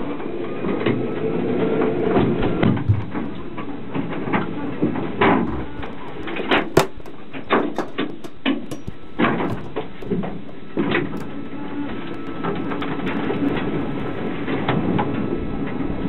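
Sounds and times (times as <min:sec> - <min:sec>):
steady rumbling: 0:02.5 - 0:14.8.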